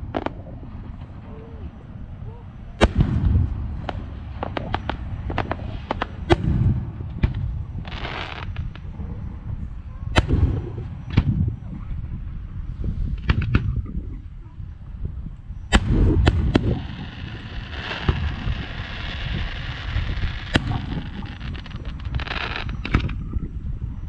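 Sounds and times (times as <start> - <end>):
continuous low rumble: 0.0 - 24.0
firework bangs: 2.8 - 8.8, 10.1 - 11.6, 15.7 - 23.1.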